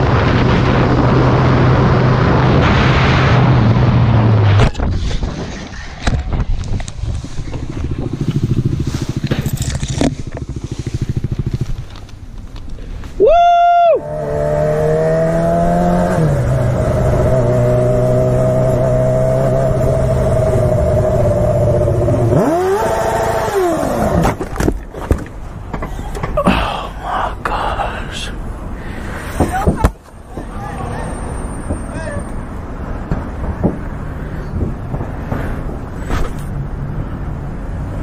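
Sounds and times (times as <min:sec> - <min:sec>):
motorcycle crashing and scraping: 0:00.0 - 0:13.2
motorcycle engine revving: 0:07.5 - 0:12.3, 0:14.0 - 0:24.4.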